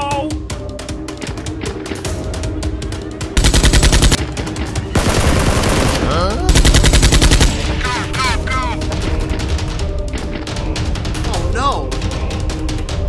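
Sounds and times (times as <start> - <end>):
background music: 0.0 - 13.0
automatic gunfire bursts: 3.4 - 4.2, 5.0 - 7.8.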